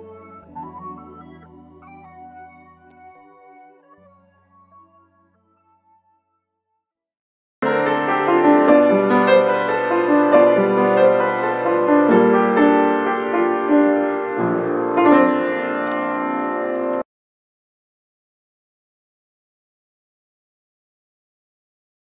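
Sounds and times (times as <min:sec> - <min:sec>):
piano music: 0:00.0 - 0:06.0, 0:07.6 - 0:17.1.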